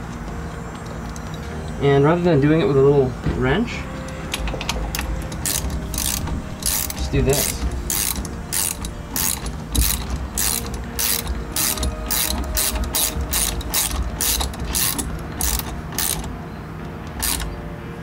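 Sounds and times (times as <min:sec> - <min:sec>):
ratchet wrench clicking: 0:04.1 - 0:16.4, 0:17.1 - 0:17.6.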